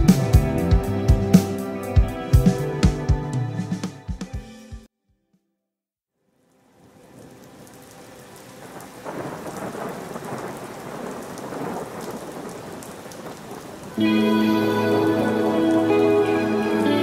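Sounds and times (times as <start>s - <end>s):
heavy rain: 6.4s - 17.0s
thunder: 9.0s - 13.8s.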